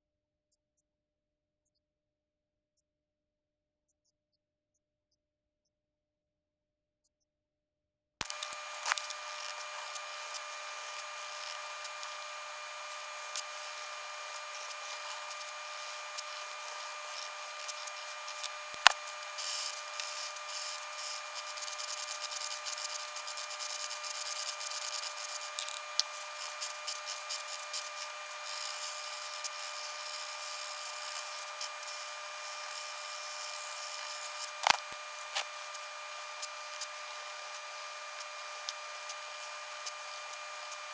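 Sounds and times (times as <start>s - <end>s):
steady high hum: 8.2s - 40.9s
pencil and marker scratching paper: 8.4s - 36.9s.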